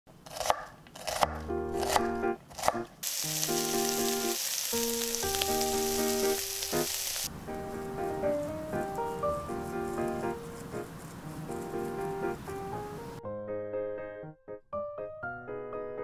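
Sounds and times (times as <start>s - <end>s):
knife chops on wooden board: 0.3s - 2.9s
light background music: 1.1s - 2.8s, 4.9s - 13.4s
food sizzling in frying pan: 3.0s - 7.3s.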